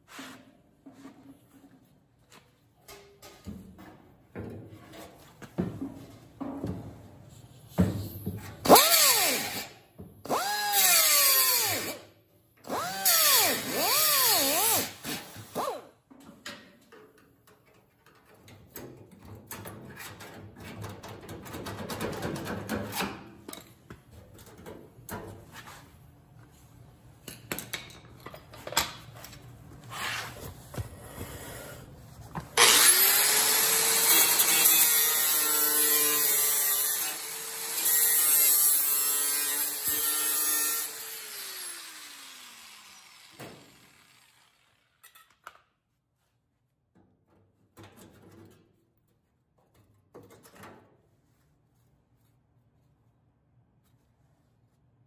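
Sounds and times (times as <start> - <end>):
knocks and scrapes of metal: 0.0 - 8.6, 47.0 - 48.8
angle grinder cutting sheet steel: 12.7 - 15.8, 32.6 - 45.1.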